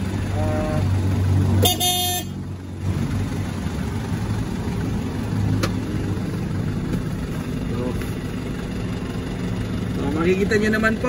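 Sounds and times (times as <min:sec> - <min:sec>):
diesel engine idling: 0:00.0 - 0:11.0
horn toot: 0:01.6 - 0:02.4.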